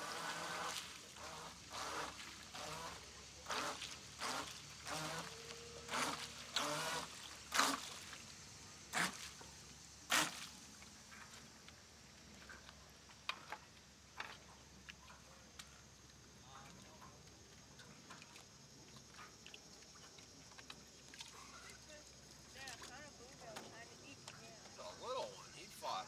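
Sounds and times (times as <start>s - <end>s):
water splashing: 0.0s - 11.0s, 16.4s - 23.6s.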